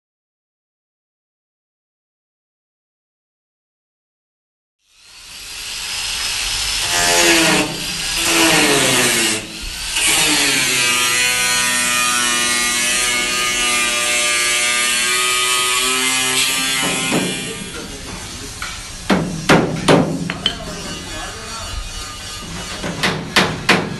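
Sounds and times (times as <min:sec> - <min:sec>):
angle grinder cutting steel: 0:04.9 - 0:19.0, 0:20.3 - 0:22.8.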